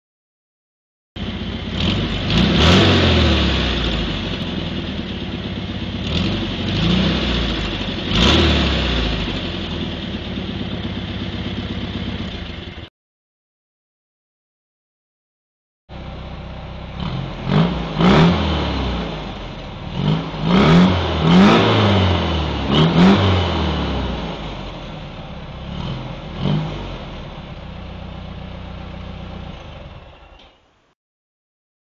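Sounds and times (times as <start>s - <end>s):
car engine idling and revving: 1.2s - 12.9s, 15.9s - 30.6s.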